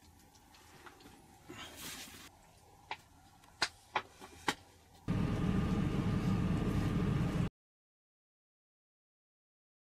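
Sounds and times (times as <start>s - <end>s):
loud low rumble: 5.1s - 7.5s.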